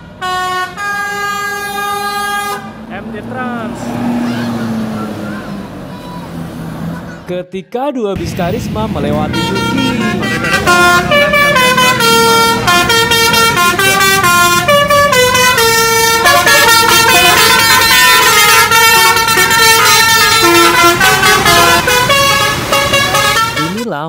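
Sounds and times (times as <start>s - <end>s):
musical air horns playing a tune: 0.0s - 2.8s, 9.2s - 24.0s.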